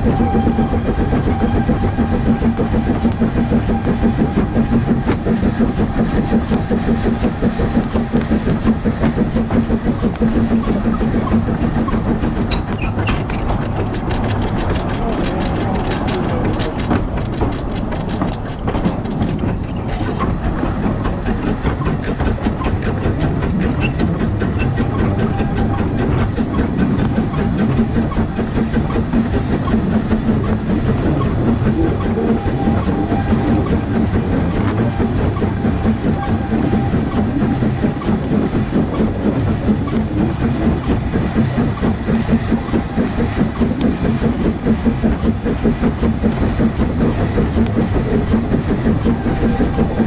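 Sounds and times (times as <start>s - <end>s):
wheels clattering on rail: 0.0s - 50.0s.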